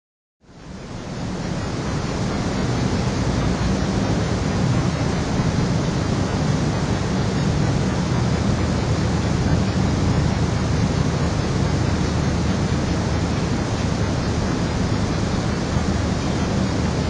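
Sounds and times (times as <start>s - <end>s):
wind buffeting microphone: 0.7s - 17.0s.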